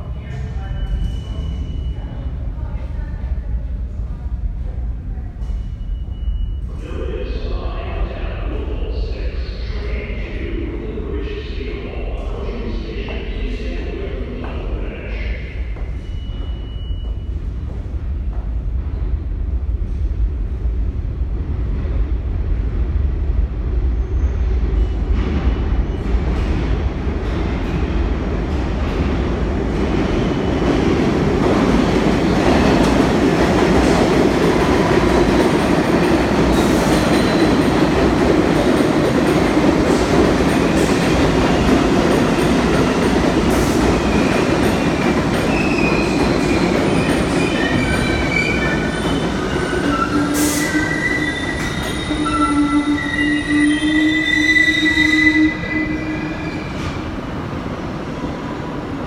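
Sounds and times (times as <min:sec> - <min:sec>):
subway train running loudly: 0:00.0 - 0:59.0
wheels and brakes squealing: 0:47.3 - 0:57.1.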